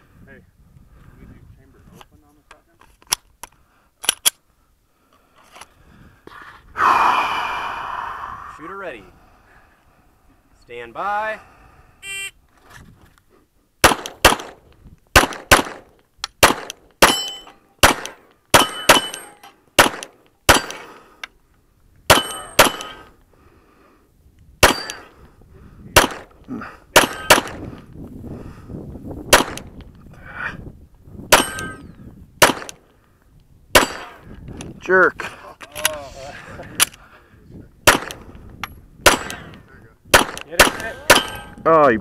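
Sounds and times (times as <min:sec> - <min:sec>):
pistol shots: 0:13.8 - 0:20.9, 0:22.1 - 0:23.0, 0:24.6 - 0:25.0, 0:26.0 - 0:26.3, 0:26.9 - 0:27.6, 0:29.3 - 0:29.7, 0:31.3 - 0:31.8, 0:32.4 - 0:32.8, 0:33.7 - 0:34.2, 0:37.8 - 0:38.3, 0:39.0 - 0:39.5, 0:40.1 - 0:41.5
steel targets clanging: 0:17.0 - 0:17.6, 0:18.6 - 0:19.6, 0:27.0 - 0:27.5, 0:31.3 - 0:31.9, 0:40.7 - 0:41.7.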